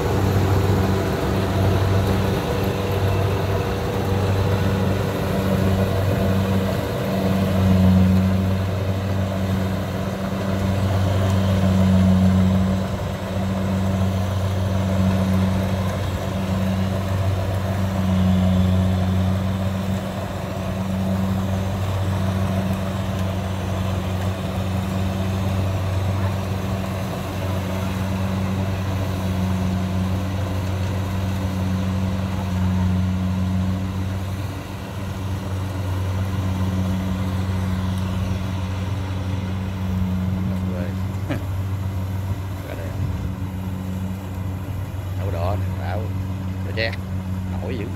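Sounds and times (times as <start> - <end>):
combine harvester engine running: 0.0 - 47.9.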